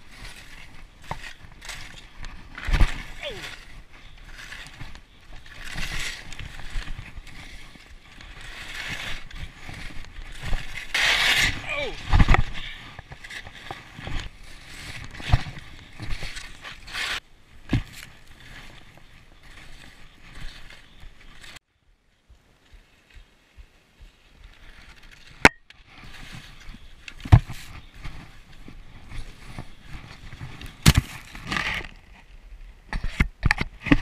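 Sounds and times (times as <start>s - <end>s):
skis hissing and scraping on snow: 0.0s - 17.4s.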